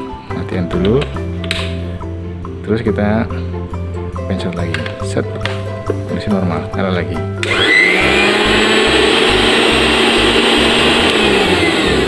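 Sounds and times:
blender motor whining: 0:07.4 - 0:12.0.

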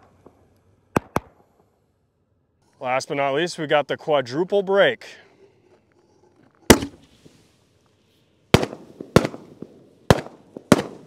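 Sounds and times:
firework mortar launch bang: 0:06.6 - 0:07.5, 0:08.5 - 0:11.0
firework shell bursts: 0:06.6 - 0:07.5.

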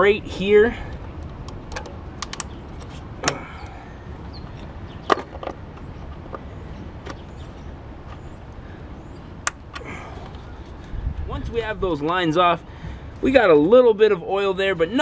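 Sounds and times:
hose clicks and knocks: 0:01.4 - 0:03.4.

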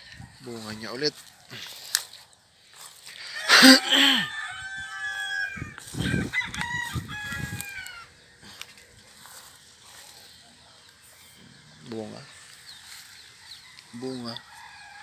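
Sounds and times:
rooster crowing: 0:03.2 - 0:08.2, 0:12.9 - 0:15.0.

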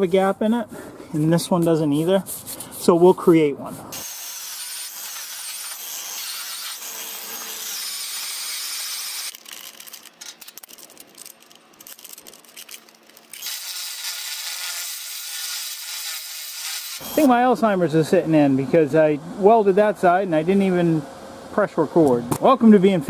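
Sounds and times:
angle grinder cutting metal: 0:04.0 - 0:09.4, 0:13.3 - 0:17.3.

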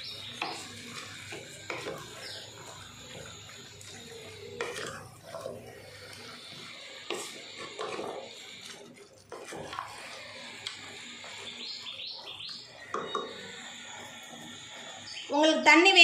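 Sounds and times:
wet mixing of chicken: 0:00.1 - 0:11.5.

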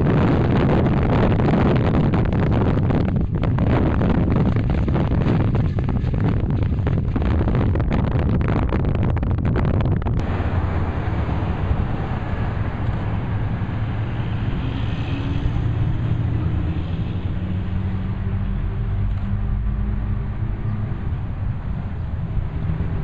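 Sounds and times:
wind noise: 0:00.0 - 0:23.0
steam train passing rumble: 0:10.2 - 0:23.0.

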